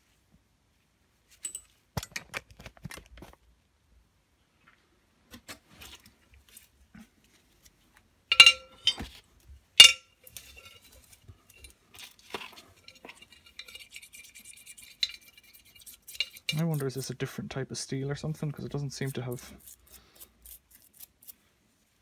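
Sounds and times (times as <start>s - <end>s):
steel parts clinking against glass bowl: 8.3s - 9.0s, 9.8s - 11.8s, 12.8s - 15.4s, 16.1s - 16.9s
part brushed in liquid: 10.2s - 17.2s.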